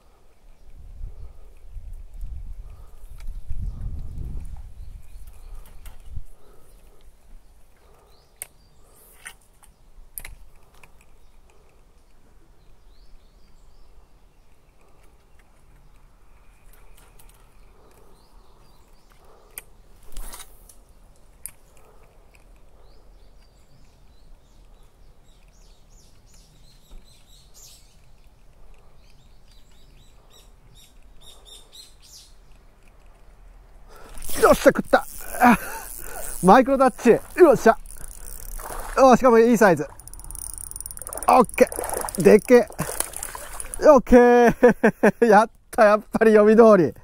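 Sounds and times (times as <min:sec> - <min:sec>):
small birds chirping: 0:00.0 - 0:47.0
sharp clicks: 0:34.0 - 0:44.0.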